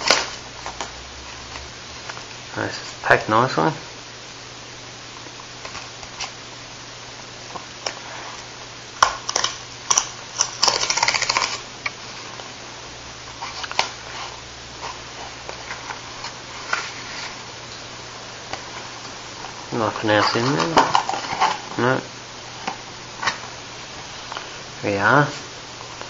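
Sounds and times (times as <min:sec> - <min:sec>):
cardboard tearing: 0:00.0 - 0:00.8, 0:09.3 - 0:11.7, 0:20.0 - 0:21.8
cardboard crackling and rustling: 0:13.3 - 0:17.5, 0:18.5 - 0:21.9.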